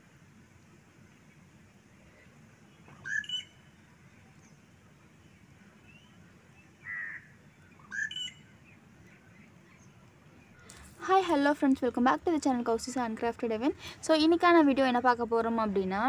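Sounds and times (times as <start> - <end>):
faint steady background noise: 0.0 - 16.0
bird calling: 2.0 - 4.5, 5.9 - 10.9.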